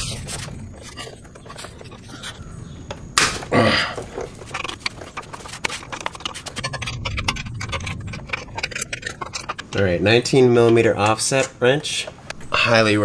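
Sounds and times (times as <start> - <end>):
wrench clicking and scraping on bolts: 4.0 - 13.0.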